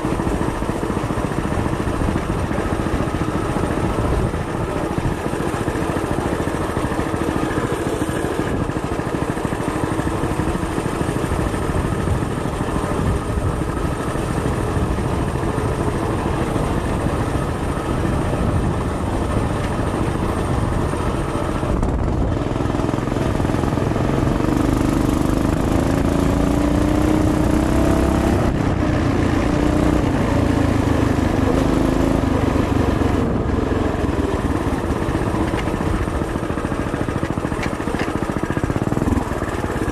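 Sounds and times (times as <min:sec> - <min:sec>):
mini bike engine running: 0:00.0 - 0:39.9.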